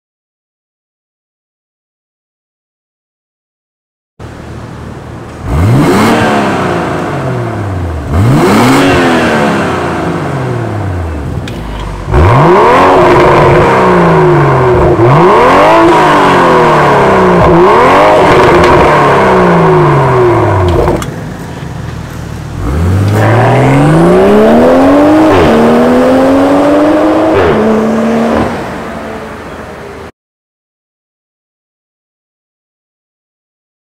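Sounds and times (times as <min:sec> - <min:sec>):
car accelerating and shifting up: 0:04.3 - 0:30.1
car engine revving loudly: 0:05.4 - 0:21.1, 0:22.5 - 0:30.1.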